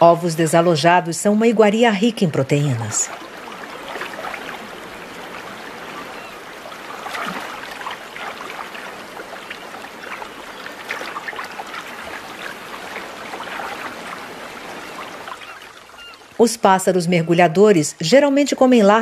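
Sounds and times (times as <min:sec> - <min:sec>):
stream babbling over stones: 0:01.9 - 0:16.6.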